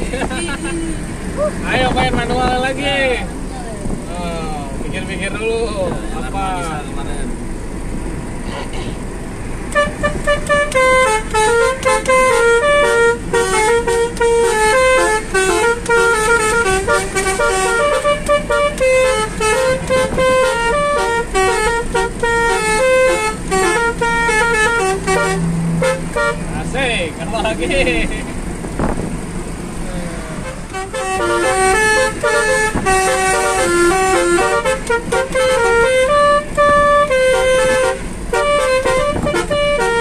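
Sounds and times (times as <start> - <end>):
car noise: 0.0 - 40.0
car air horns playing melody: 9.7 - 26.6, 30.4 - 40.0.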